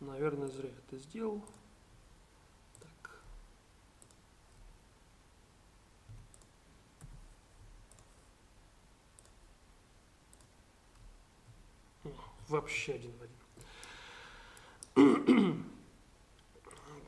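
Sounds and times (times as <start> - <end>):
computer mouse clicks: 1.4 - 1.7, 4.0 - 4.2, 6.1 - 7.2, 7.8 - 8.2, 9.2 - 9.4, 10.3 - 11.0, 13.5 - 15.0.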